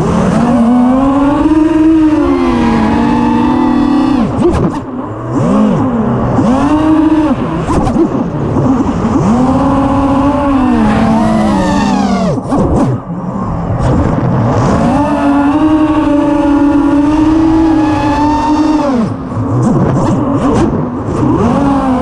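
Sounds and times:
quadcopter motors whining: 0.0s - 12.8s, 14.7s - 19.2s.

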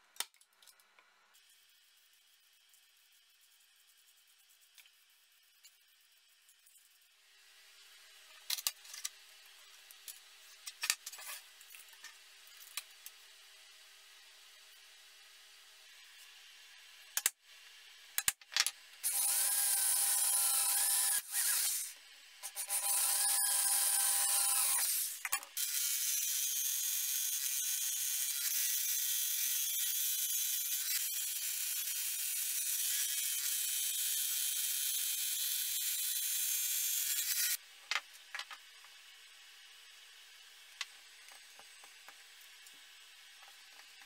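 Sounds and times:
scroll saw cutting: 19.0s - 37.6s.

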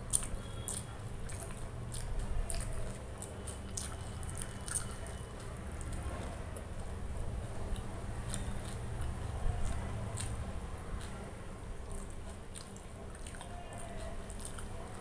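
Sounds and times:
close chewing with mouth smacks: 0.0s - 15.0s.

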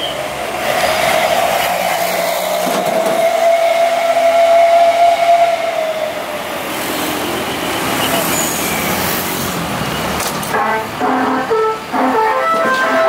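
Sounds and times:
road traffic: 0.0s - 13.0s
melody air horn long note: 10.6s - 13.0s.

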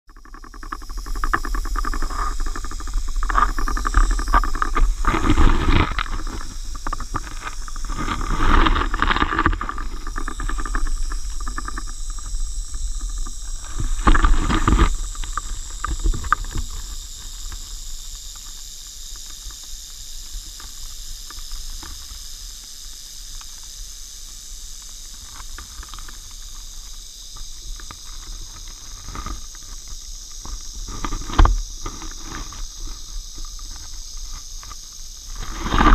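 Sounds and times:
rattlesnake tail rattle buzzing: 0.1s - 35.9s
camera knocks and rustles in grass: 1.2s - 12.3s, 12.9s - 16.7s.

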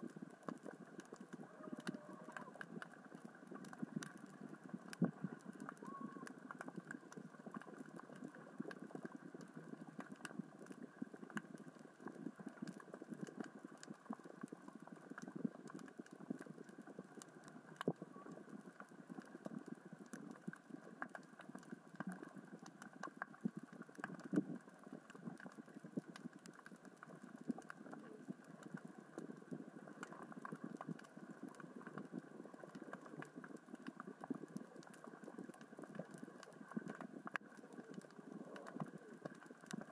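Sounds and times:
underwater rocks crackling: 0.0s - 39.9s.

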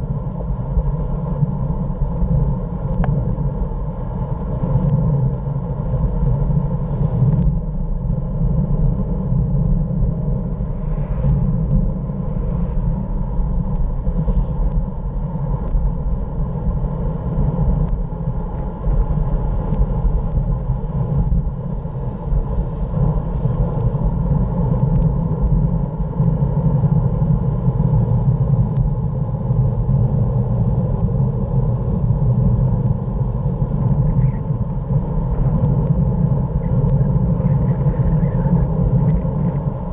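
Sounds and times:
wind buffeting microphone: 0.0s - 39.9s.

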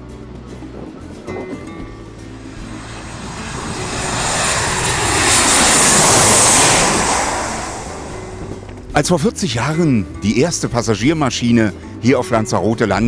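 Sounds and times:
jet airliner passing overhead: 1.4s - 8.9s.

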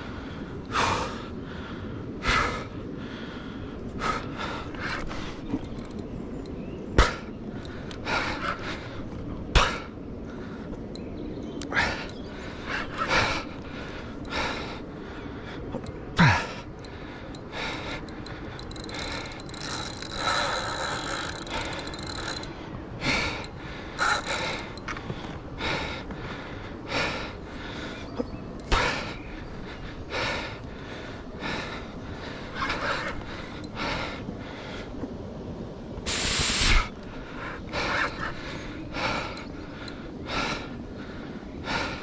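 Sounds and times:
fishing reel whirring: 17.7s - 22.5s, 24.0s - 24.8s.

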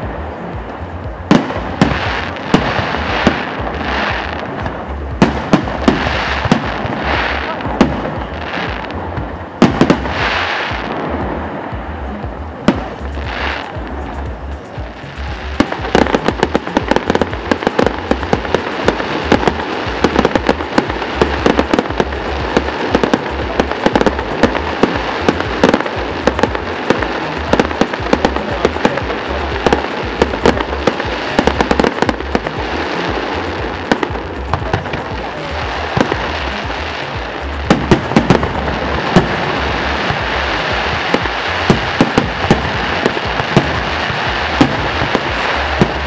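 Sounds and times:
fireworks bangs and crackling: 0.0s - 46.0s.

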